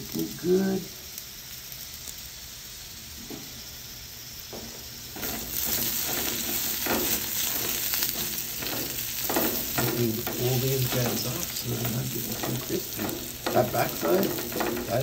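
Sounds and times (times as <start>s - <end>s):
potatoes sizzling in oil: 0.0s - 15.0s
spatula scraping a pan: 5.2s - 15.0s.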